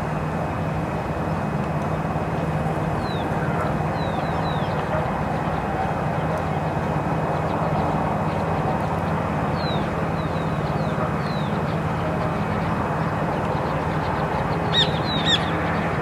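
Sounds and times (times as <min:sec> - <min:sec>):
outdoor background rumble: 0:00.0 - 0:16.0
sharp bird calls: 0:13.5 - 0:16.0.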